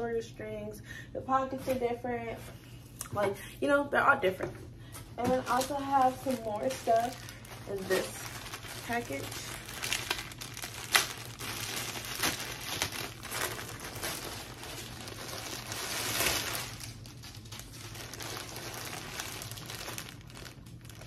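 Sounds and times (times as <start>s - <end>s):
plastic bags crinkling: 5.1s - 21.0s.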